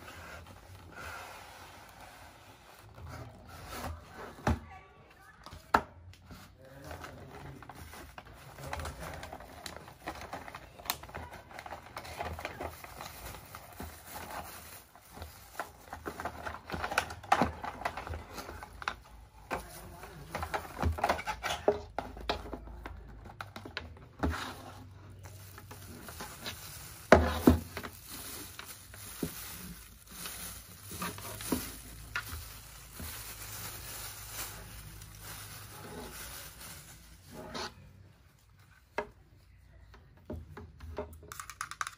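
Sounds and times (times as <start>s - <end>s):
plastic wrap crinkling: 6.7s - 38.6s.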